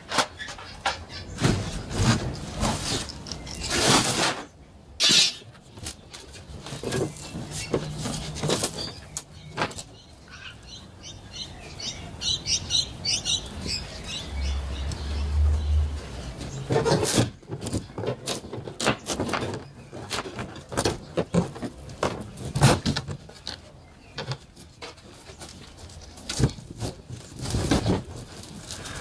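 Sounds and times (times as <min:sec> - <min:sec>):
small birds chirping: 0:05.2 - 0:16.9
plywood panels being pried off: 0:16.7 - 0:23.6.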